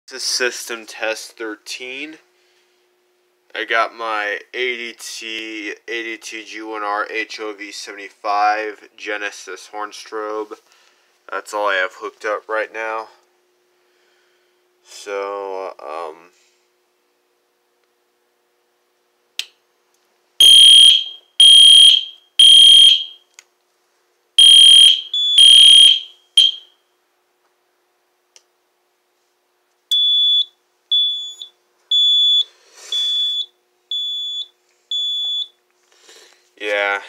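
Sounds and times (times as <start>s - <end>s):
fire alarm horn blasts: 20.4s - 23.2s, 24.4s - 26.8s
short alarm beeps: 20.4s - 23.2s, 24.4s - 26.7s, 29.9s - 35.5s.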